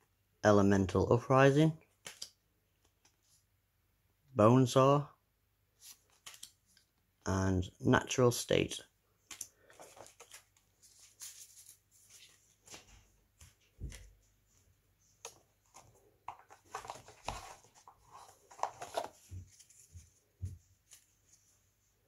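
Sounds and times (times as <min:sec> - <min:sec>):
trading cards rustling and tapping: 0:01.9 - 0:03.2, 0:05.9 - 0:06.9, 0:09.2 - 0:14.2, 0:15.2 - 0:21.1.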